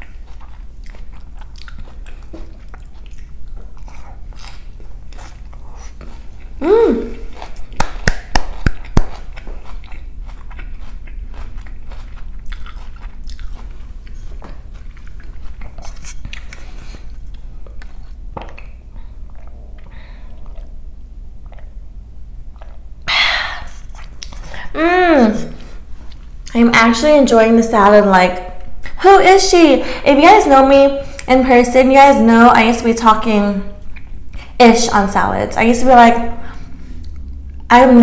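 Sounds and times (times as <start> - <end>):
chewing crunchy salad: 0.0 - 23.0, 23.6 - 24.7, 36.4 - 37.7.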